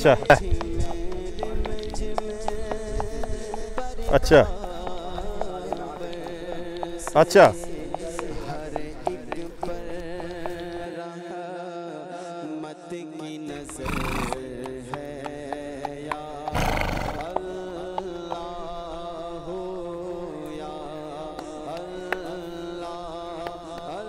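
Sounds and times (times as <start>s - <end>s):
horse snorting: 13.5s - 18.7s.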